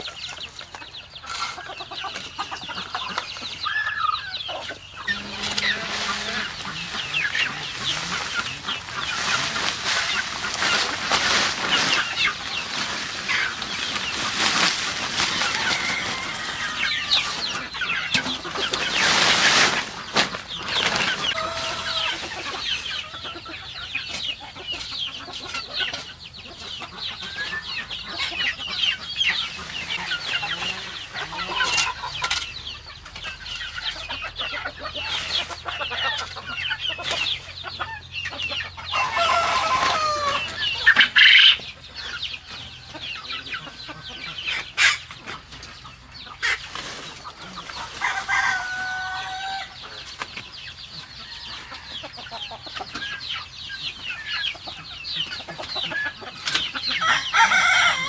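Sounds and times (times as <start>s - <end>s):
hoe scraping dirt: 0.0s - 42.2s
chickens clucking and chirping: 0.0s - 58.0s
drawn-out chicken call: 0.0s - 58.0s.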